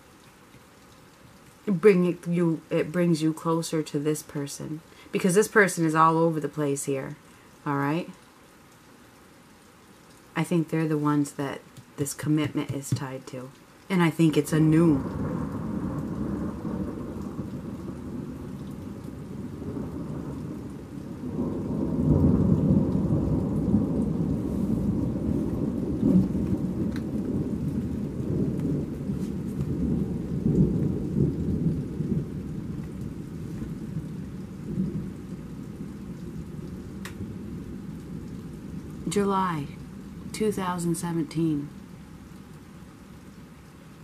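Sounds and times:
heavy rain pouring: 0.0s - 44.0s
thunder rolling: 15.0s - 38.9s.

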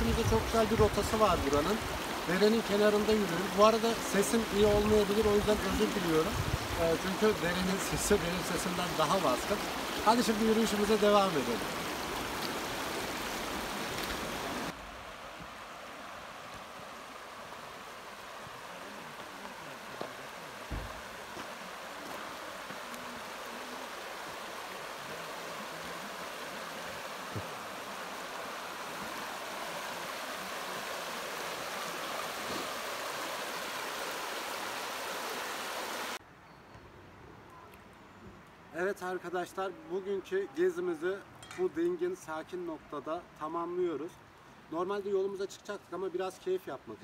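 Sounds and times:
creek rushing over rocks: 0.0s - 36.2s.

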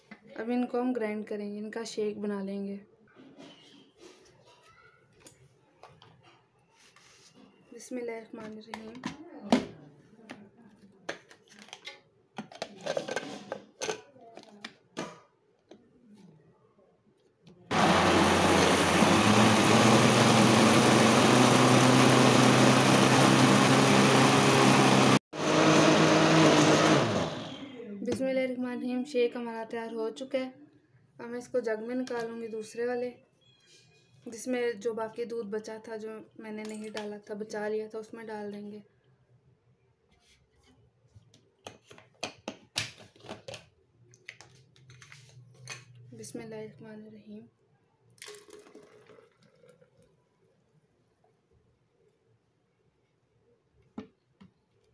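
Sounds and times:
blender motor running: 17.7s - 27.8s.

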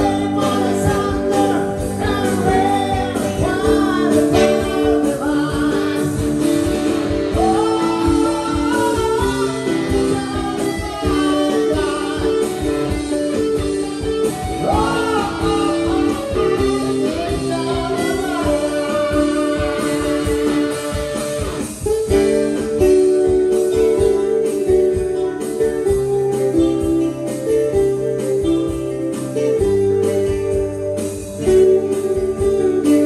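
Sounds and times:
guitar: 0.0s - 33.0s
live band playing: 0.0s - 33.0s.

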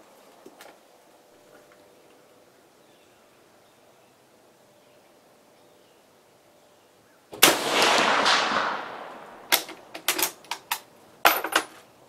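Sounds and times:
rifle shot: 7.4s - 10.4s
rifle bolt clicks and clacks: 9.5s - 10.8s.

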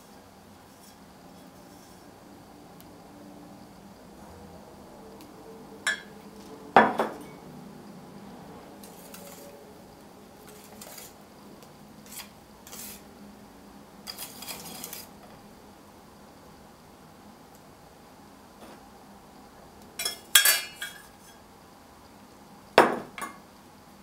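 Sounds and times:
scraping and clinking: 8.8s - 9.6s, 14.1s - 15.1s
whisk stirring in bowl: 8.8s - 9.6s, 10.4s - 11.2s, 12.0s - 13.1s, 14.1s - 15.1s.

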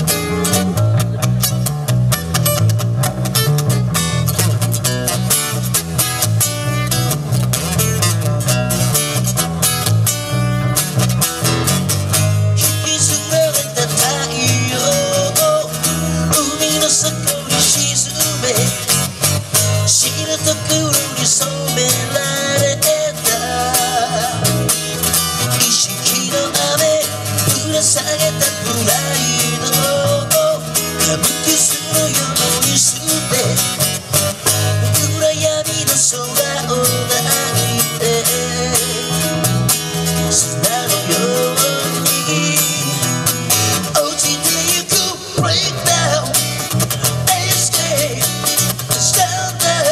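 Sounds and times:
plucked bass line: 0.0s - 49.9s
strummed acoustic guitar: 0.0s - 49.9s
man singing: 12.4s - 49.9s.

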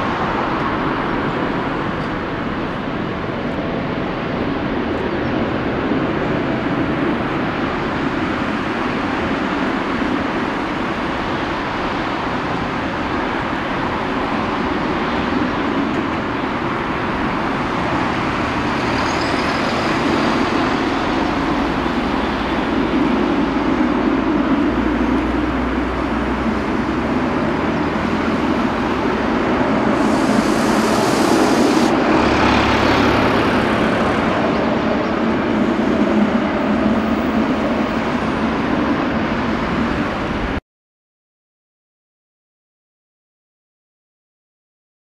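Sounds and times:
jet engine rumble: 0.0s - 40.6s
burst of hiss: 29.8s - 32.0s.

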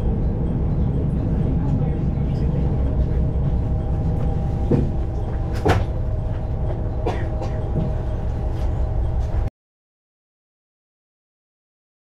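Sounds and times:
diesel engine rumbling: 0.0s - 9.5s
knocks and clunks: 3.5s - 8.8s.

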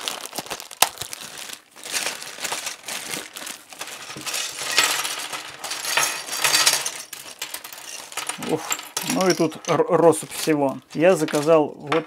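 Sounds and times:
plastic bag crinkling: 0.0s - 11.7s.

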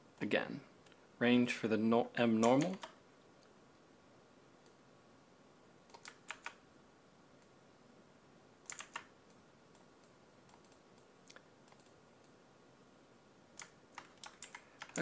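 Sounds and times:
computer keyboard key presses: 2.4s - 3.0s, 5.9s - 6.6s, 8.7s - 9.1s, 13.6s - 15.0s.

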